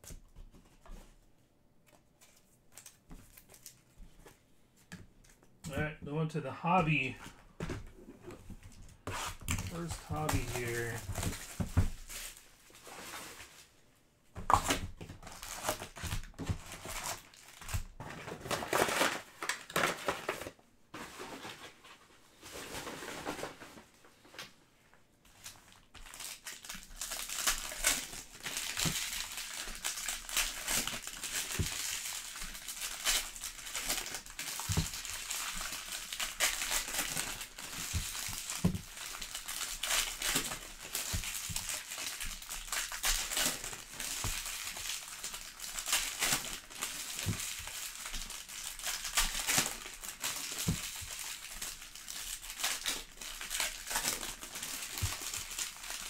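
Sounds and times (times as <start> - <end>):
card packs crinkling and tearing: 2.2 - 4.4, 8.6 - 13.6, 14.4 - 20.6, 25.3 - 56.0.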